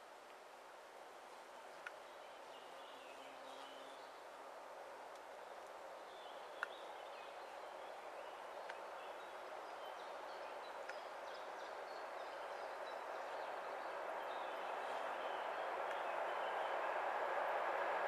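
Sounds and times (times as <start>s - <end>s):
distant diesel locomotive: 9.2s - 18.0s.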